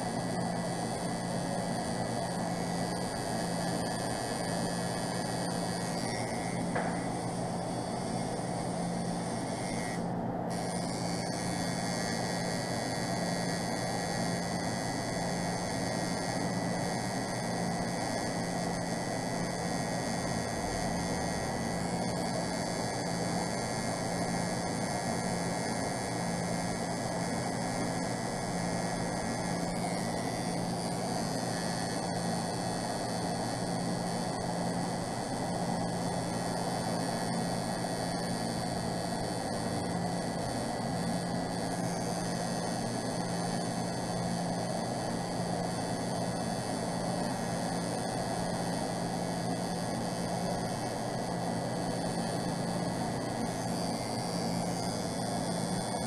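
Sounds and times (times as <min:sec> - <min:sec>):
tattoo machine buzzing: 0:00.0 - 0:56.0.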